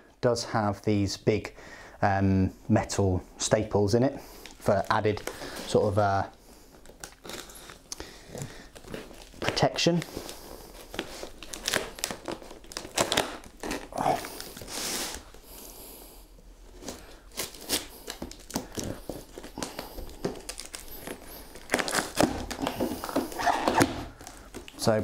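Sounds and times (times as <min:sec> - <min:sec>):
tape crinkling and tearing: 0:04.3 - 0:15.5, 0:16.6 - 0:25.0.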